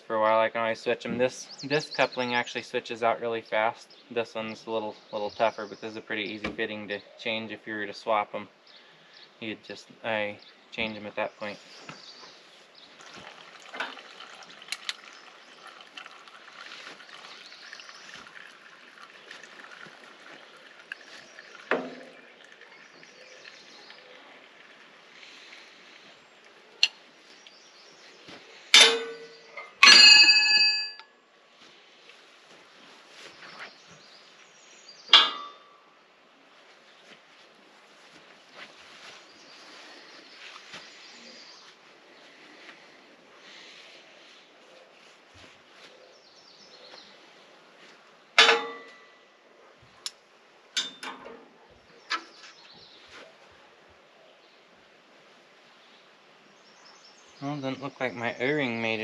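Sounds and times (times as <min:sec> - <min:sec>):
steel wrenches clanking: 0:28.8 - 0:31.0, 0:48.4 - 0:49.0, 0:50.8 - 0:51.4
wrenches clanking on steel: 0:48.4 - 0:49.0.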